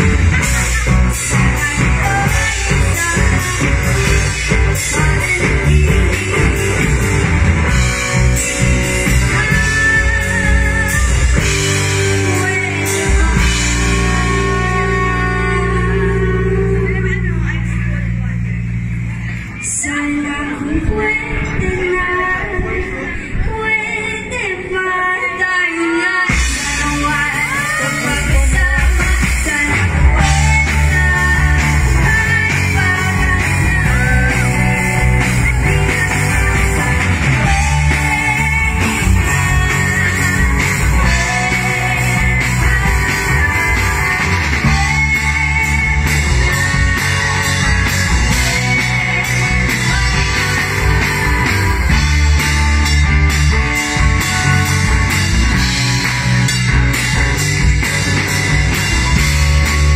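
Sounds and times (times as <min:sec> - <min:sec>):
bass guitar: 0:00.0 - 0:59.9
drums: 0:00.0 - 0:59.9
electric guitar: 0:00.0 - 0:59.9.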